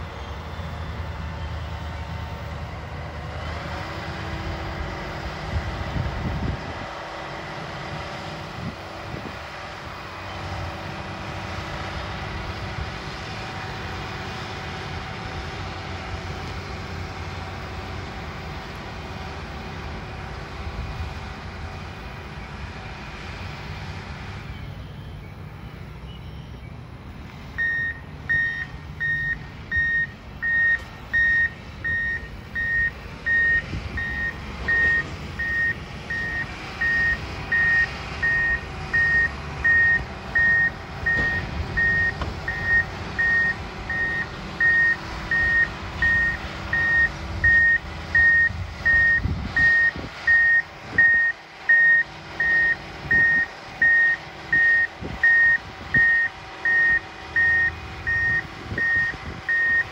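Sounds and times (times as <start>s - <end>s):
diesel engine running: 0.0s - 59.9s
backup alarm beeping: 27.6s - 59.9s.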